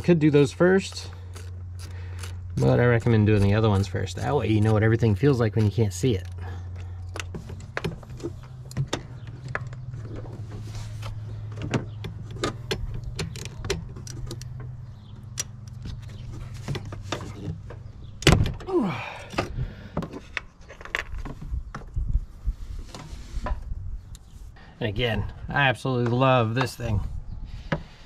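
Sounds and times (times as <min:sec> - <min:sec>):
steady low hum: 0:00.0 - 0:20.4
metal tools clicking and knocking: 0:11.6 - 0:16.2.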